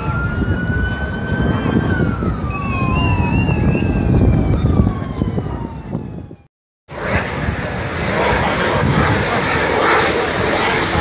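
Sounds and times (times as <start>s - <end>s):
jet roaring past: 6.9s - 11.0s.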